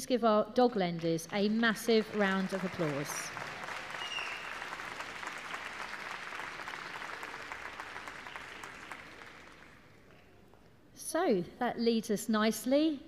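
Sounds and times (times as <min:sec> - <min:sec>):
audience applauding: 0:01.4 - 0:10.2.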